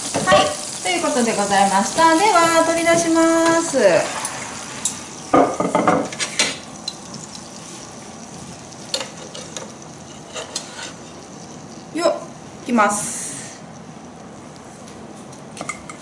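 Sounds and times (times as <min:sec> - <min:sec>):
food sizzling in a frying pan: 0:00.0 - 0:16.0
kitchenware clinking and knocking: 0:05.4 - 0:06.6.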